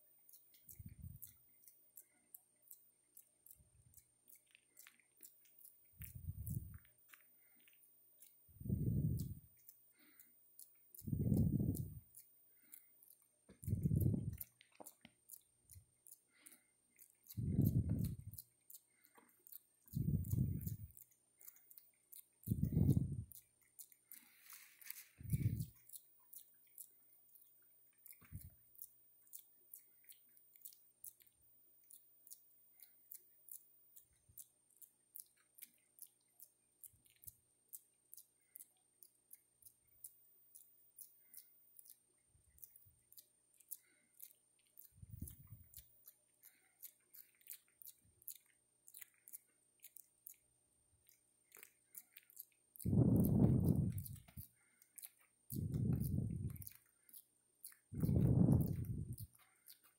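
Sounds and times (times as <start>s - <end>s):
monkeys lip-smacking: 0.3s - 59.9s.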